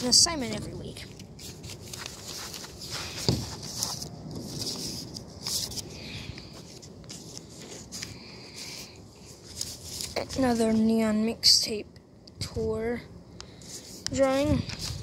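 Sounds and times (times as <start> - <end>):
paper rustling: 0.0 - 11.0, 13.5 - 15.0.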